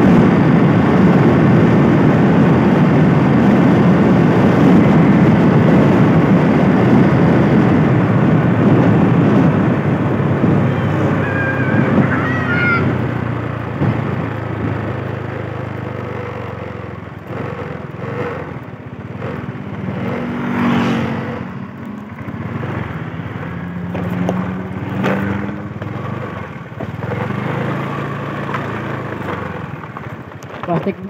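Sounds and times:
scooter engine running: 0.0s - 31.0s
wind and road noise: 0.0s - 31.0s.

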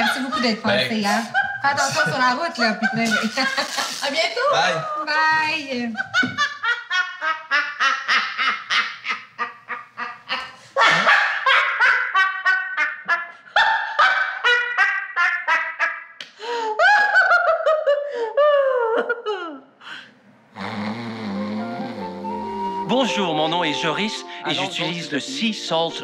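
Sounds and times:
women laughing: 0.0s - 4.2s, 5.7s - 16.0s, 16.8s - 19.6s.

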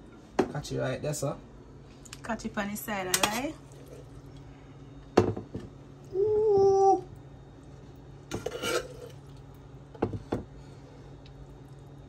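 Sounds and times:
person humming: 6.1s - 7.1s
utensil scraping a plate: 8.3s - 9.2s.

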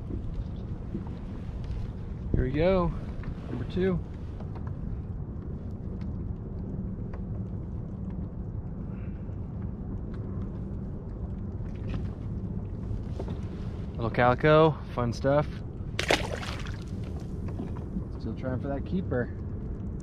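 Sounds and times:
wind buffeting microphone: 0.0s - 20.0s
faint clicks and taps: 4.4s - 8.5s.

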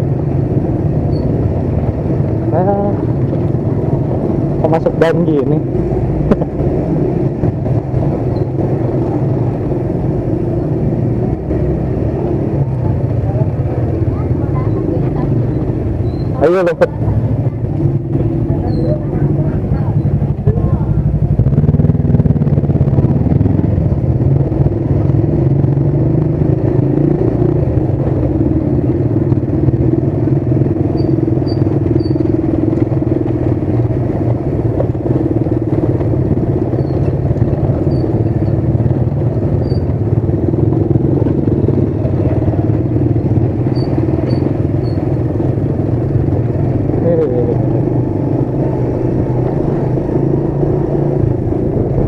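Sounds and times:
motorcycle engine at low speed: 0.0s - 52.0s.

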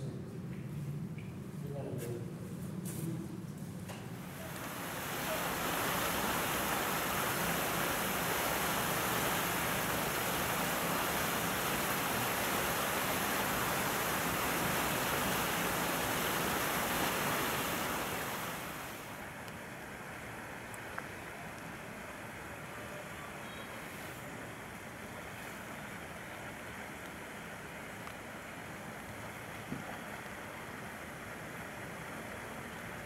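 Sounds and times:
steady rushing noise: 4.2s - 19.3s.

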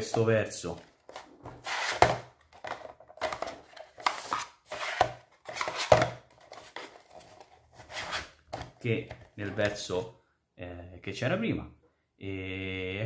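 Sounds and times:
plastic clacks and scrapes: 1.0s - 9.7s.

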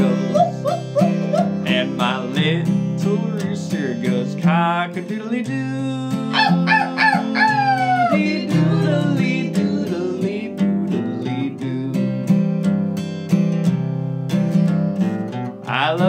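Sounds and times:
strummed acoustic guitar: 0.0s - 16.0s
rooster crowing: 6.3s - 8.4s.

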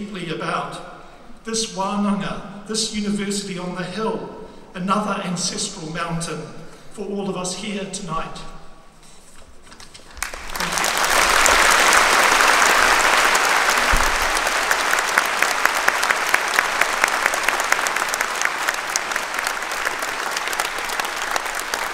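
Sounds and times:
large audience applauding: 10.0s - 21.9s.

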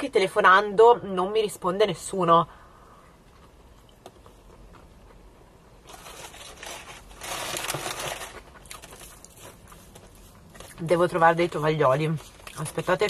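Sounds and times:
bag rustling: 5.9s - 9.6s.

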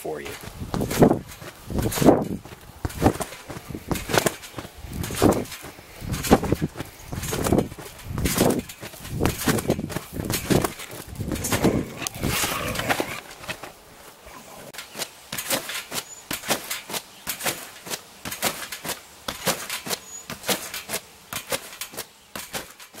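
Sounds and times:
dog growling: 11.4s - 13.4s.

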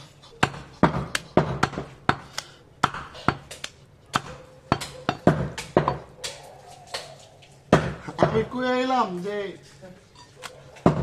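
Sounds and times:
cleaver chopping meat on wood: 0.4s - 7.1s, 7.7s - 8.5s, 10.8s - 11.0s.

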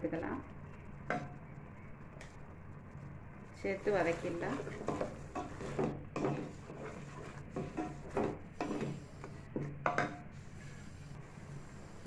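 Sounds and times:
spoon scraping metal pot: 4.0s - 9.3s.

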